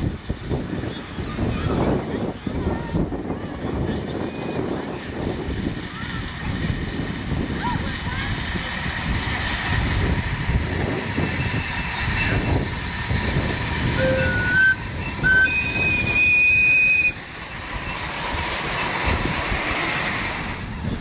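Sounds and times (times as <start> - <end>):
steam locomotive exhaust beats: 0.0 - 21.0
wheel clatter: 3.8 - 21.0
steam whistle: 14.0 - 17.2.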